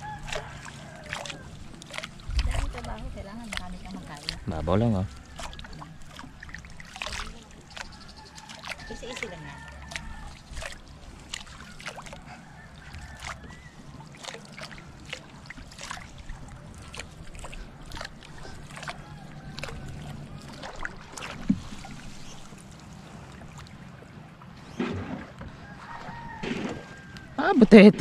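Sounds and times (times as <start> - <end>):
water splashing and dripping: 0.0 - 27.8.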